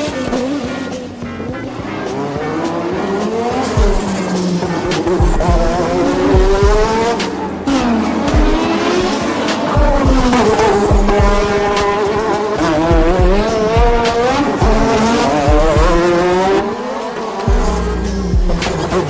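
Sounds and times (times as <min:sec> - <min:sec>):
racing car engine revving: 0:00.0 - 0:19.0
low thumps: 0:09.8 - 0:11.6, 0:12.9 - 0:16.0, 0:17.5 - 0:19.0.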